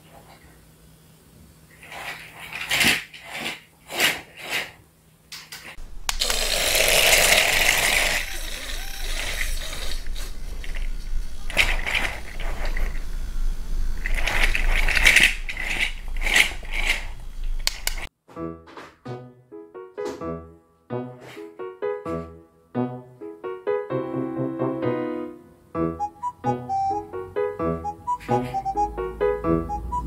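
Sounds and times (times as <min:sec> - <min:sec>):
toy motor clicking and whirring: 0:06.1 - 0:18.1.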